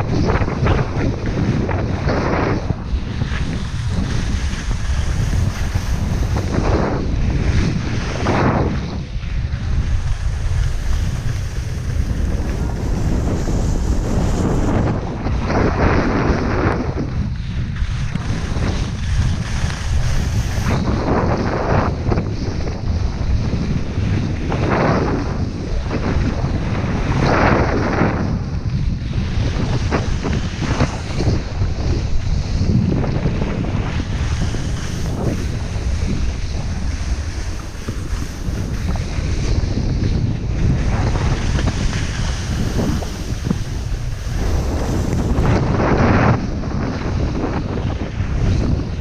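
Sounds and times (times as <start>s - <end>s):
skis scraping on snow: 0.0s - 49.0s
wind buffeting microphone: 0.0s - 49.0s.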